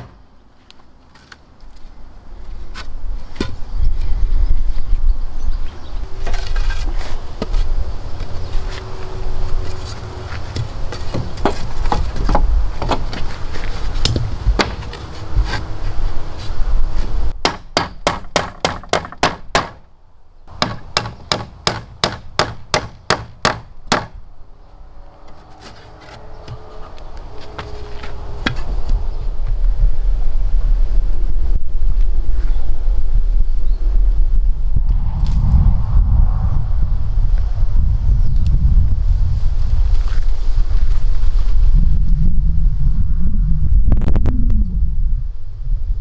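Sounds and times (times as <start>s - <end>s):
wind noise on microphone: 2.2s - 17.4s, 26.2s - 46.0s
hammer striking nails: 17.4s - 19.8s, 20.5s - 24.2s.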